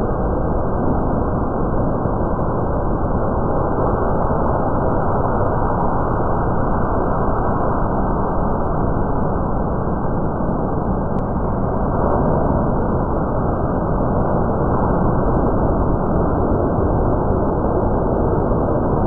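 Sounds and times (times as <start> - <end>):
slowed thunderstorm low rumble: 0.0 - 19.0.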